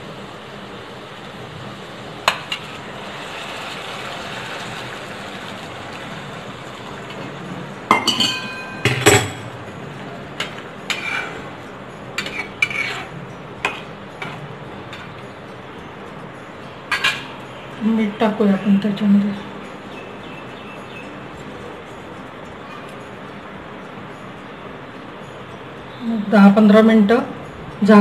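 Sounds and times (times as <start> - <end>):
hot water pouring into pan: 0.3 - 7.8
metal spatula scraping pan: 10.4 - 11.5, 12.2 - 15.2.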